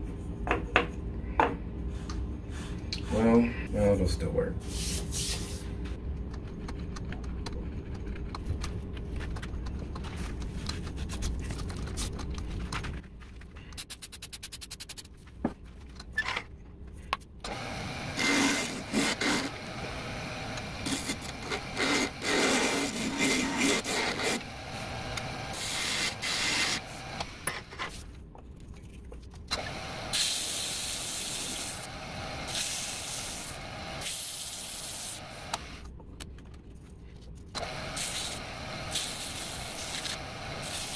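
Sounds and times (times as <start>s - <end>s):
low motor hum: 17.4s - 27.5s
tool scraping spinning wood: 17.5s - 28.0s.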